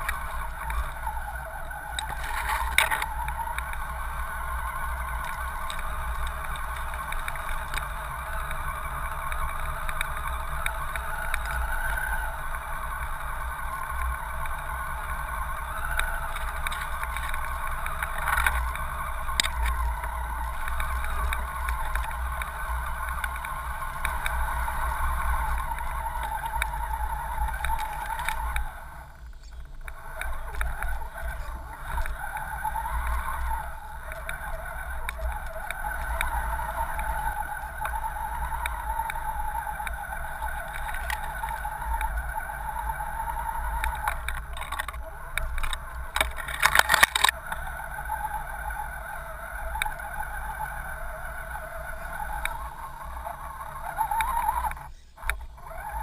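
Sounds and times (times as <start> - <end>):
rc truck motor and gear whine: 0.0 - 56.0.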